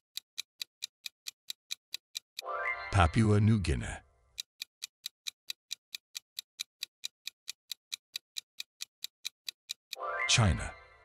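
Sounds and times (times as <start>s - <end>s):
countdown timer ticking: 0.2s - 11.0s.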